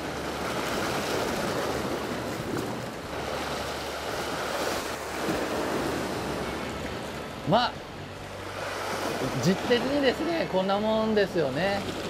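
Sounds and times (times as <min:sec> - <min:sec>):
surf breaking on rocks: 0:00.0 - 0:06.6.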